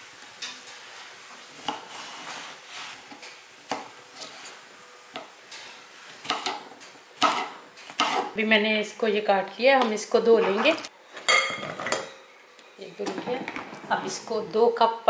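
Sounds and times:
knife chopping on wooden board: 6.2s - 6.6s, 7.2s - 8.3s.

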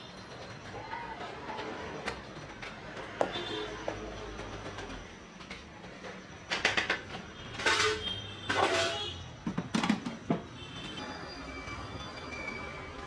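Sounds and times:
steel kitchenware clinking: 7.6s - 9.2s.

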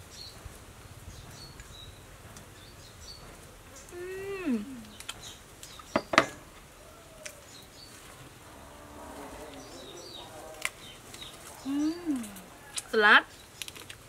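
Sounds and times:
faint voice: 11.5s - 12.6s.

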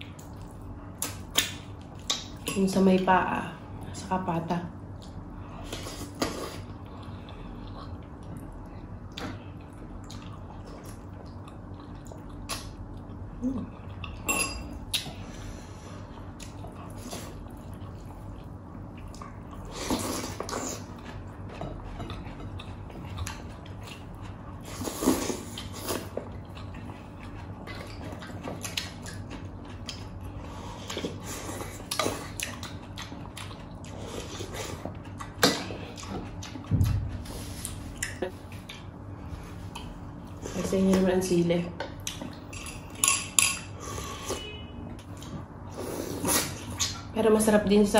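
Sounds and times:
steady low hum: 0.0s - 47.9s
chewing and mouth noises: 4.8s - 15.3s, 16.0s - 41.0s, 41.8s - 44.4s
spoons clinking on plates: 14.3s - 14.7s.

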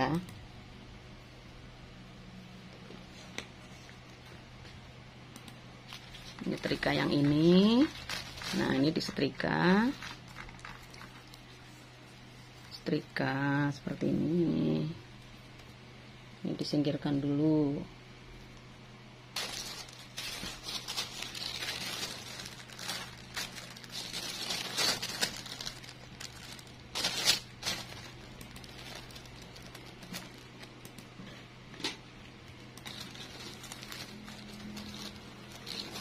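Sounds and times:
plastic sheet crinkling: 5.9s - 11.8s, 19.4s - 31.1s, 32.8s - 36.0s.

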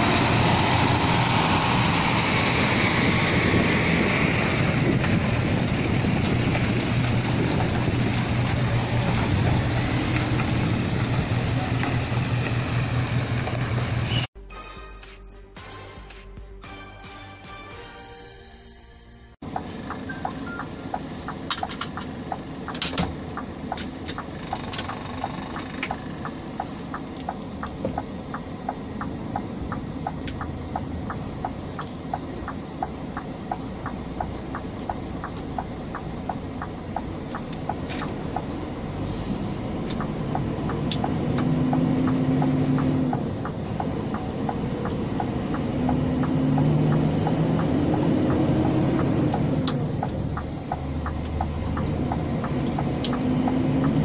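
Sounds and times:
truck diesel engine from cab: 0.0s - 14.4s, 19.4s - 54.0s
light ticking: 19.5s - 54.0s.

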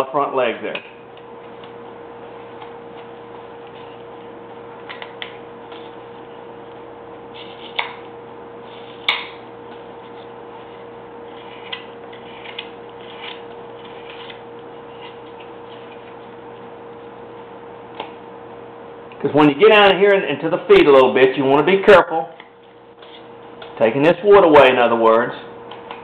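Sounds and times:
steady hum: 0.0s - 26.0s.

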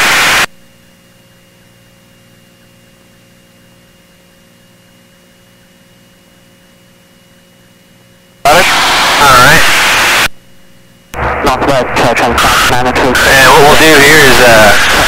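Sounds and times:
electrical hum and hiss: 0.0s - 15.0s.

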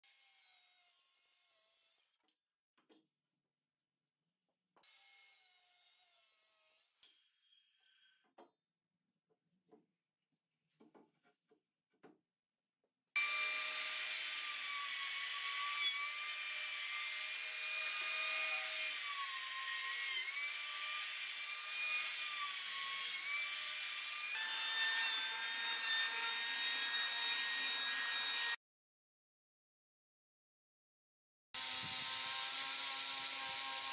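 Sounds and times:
electric hand planer whining: 13.2s - 19.4s.

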